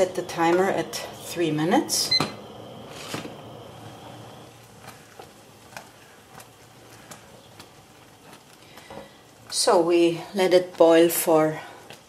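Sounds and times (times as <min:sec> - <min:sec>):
wooden spoon stirring: 0:04.6 - 0:12.0.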